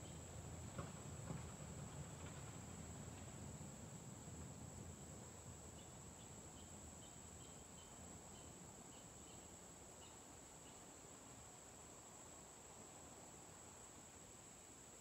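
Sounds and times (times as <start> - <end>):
insect chirps: 0.0 - 0.4, 3.6 - 15.0
insect high-pitched whine: 4.8 - 15.0.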